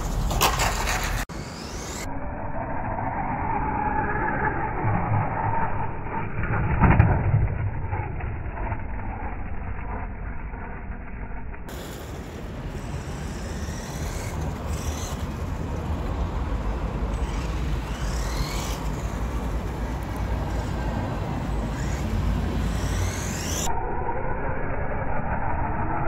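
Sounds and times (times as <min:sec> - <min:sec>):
electric motor whining: 0:12.7 - 0:15.7, 0:17.1 - 0:23.7.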